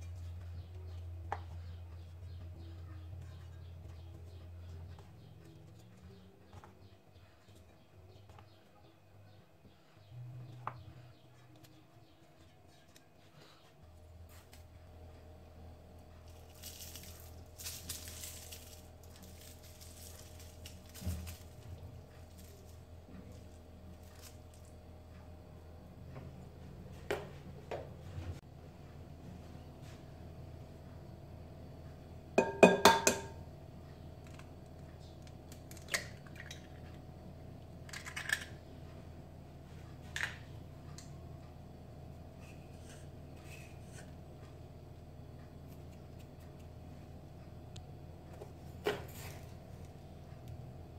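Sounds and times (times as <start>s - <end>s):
low steady hum: 0.0s - 50.9s
gritty sugar rustles: 15.9s - 24.8s
glass bowl ringing: 32.4s - 33.3s
egg knocking on glass bowl: 32.4s - 33.4s.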